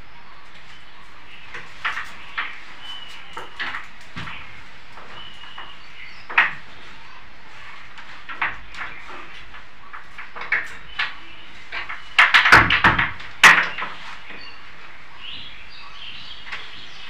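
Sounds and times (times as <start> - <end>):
sharp knocks and heavy thumps: 11.8 - 14.0.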